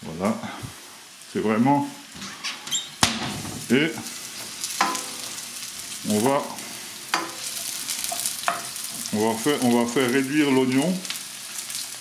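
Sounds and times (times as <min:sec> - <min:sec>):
onions sizzling in oil: 0:00.0 - 0:12.0
wooden spoon stirring: 0:07.1 - 0:10.2.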